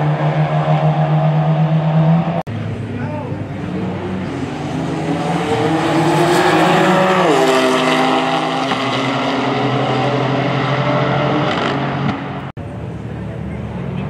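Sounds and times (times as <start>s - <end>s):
race cars passing at full throttle: 0.0s - 14.0s
cars idling at start line: 12.6s - 14.0s.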